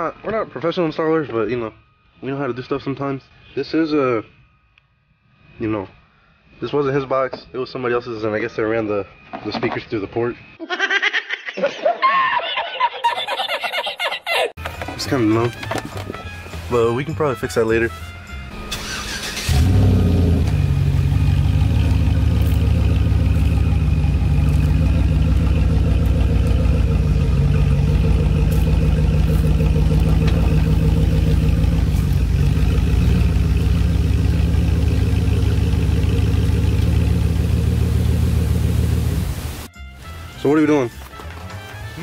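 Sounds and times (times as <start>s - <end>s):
car engine starting and idling: 14.6s - 42.0s.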